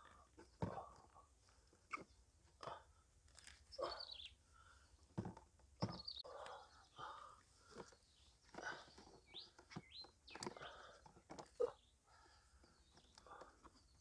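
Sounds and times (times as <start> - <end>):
small birds chirping: 3.4 - 5.1, 5.8 - 14.0.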